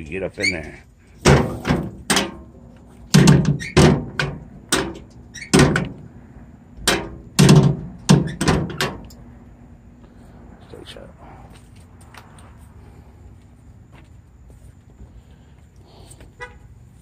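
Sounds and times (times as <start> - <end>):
metal door slamming: 1.2 - 2.5, 3.1 - 6.0, 6.8 - 9.1.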